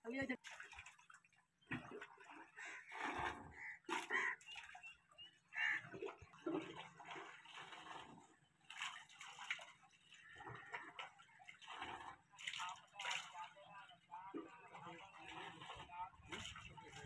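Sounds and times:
water splashing from pipe: 0.0 - 4.9, 5.6 - 17.0.

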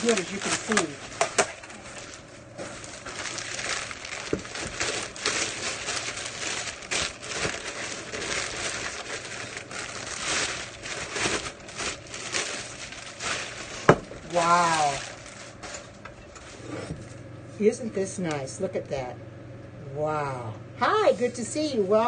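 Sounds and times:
plastic wrapping crinkling: 0.0 - 16.7.

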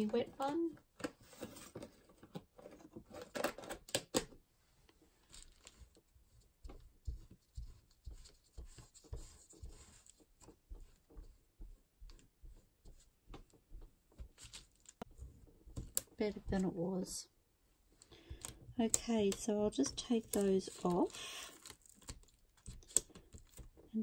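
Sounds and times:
wipe packet rustling: 5.1 - 16.7, 18.2 - 23.7.

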